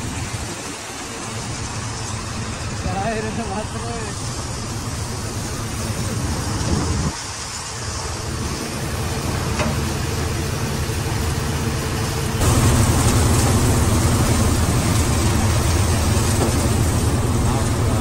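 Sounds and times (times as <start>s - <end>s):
thresher running: 0.0s - 18.0s
tractor engine hum: 0.0s - 18.0s.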